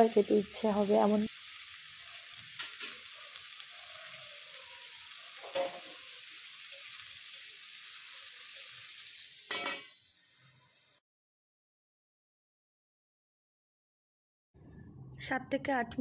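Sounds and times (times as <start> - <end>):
food frying in oil: 0.0 - 11.0.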